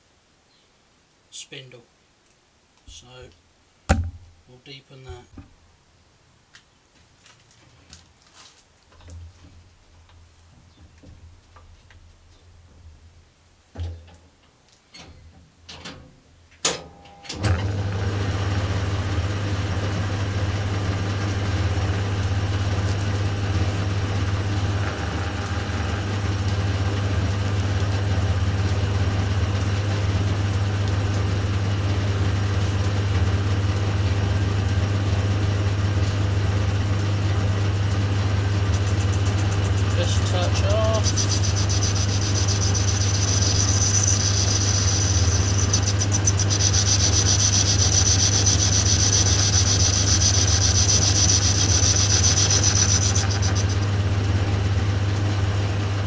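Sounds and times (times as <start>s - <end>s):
sharp knocks: 3.9s - 4.3s
lathe motor humming: 17.4s - 56.0s.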